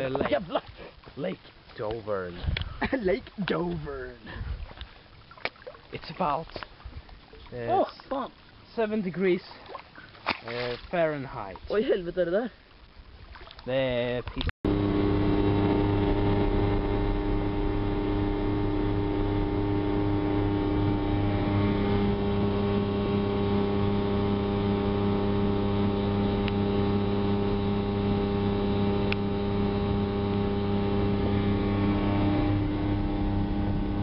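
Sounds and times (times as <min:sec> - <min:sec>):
outboard motor running: 0:14.6 - 0:34.0.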